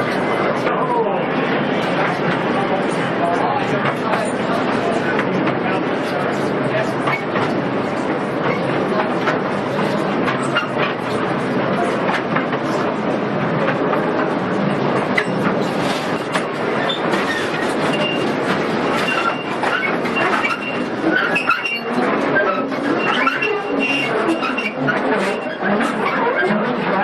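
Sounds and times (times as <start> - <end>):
rail carriage rattling on track: 0.0 - 27.0
wheel squeals: 16.0 - 26.3.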